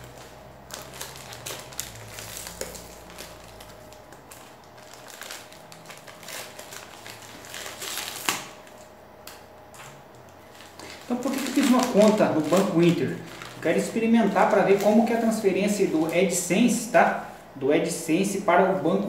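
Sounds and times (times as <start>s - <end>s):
envelope being torn open: 0.0s - 8.9s, 10.4s - 15.3s
paper crackling and crinkling: 0.0s - 17.4s.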